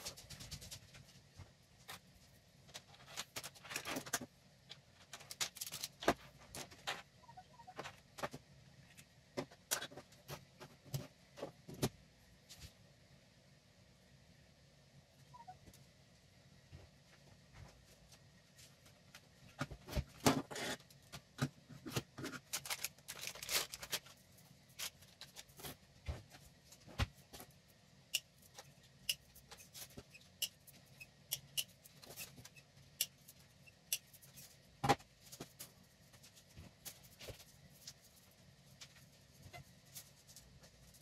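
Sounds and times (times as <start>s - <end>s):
plastic wrap rustling: 2.7s - 4.2s, 5.0s - 6.9s, 22.3s - 26.3s.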